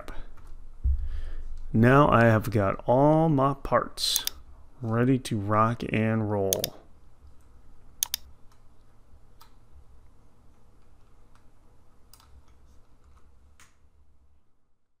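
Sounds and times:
computer mouse clicking: 6.5s - 6.8s, 8.0s - 8.6s, 12.1s - 13.8s.

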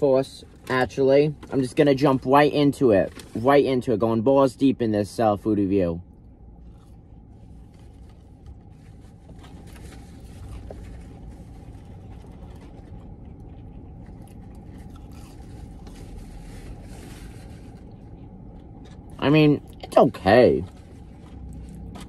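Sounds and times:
person chewing fries: 6.1s - 22.0s.

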